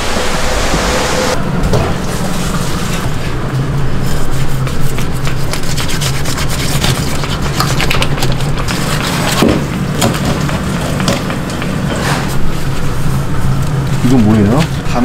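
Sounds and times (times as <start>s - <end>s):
steady low hum: 0.0s - 15.0s
knife sawing through fish: 4.1s - 8.0s.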